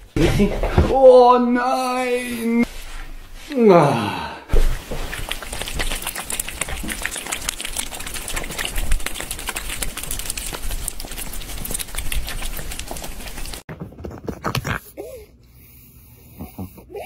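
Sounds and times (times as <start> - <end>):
cats licking and chewing: 4.6 - 14.9.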